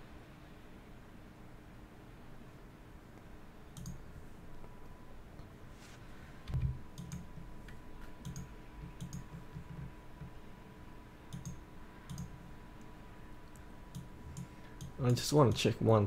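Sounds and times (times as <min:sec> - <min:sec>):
faint high-pitched whine: 0:00.0 - 0:16.0
computer mouse clicking: 0:03.7 - 0:04.1, 0:06.5 - 0:10.3, 0:11.3 - 0:12.5, 0:13.5 - 0:15.7.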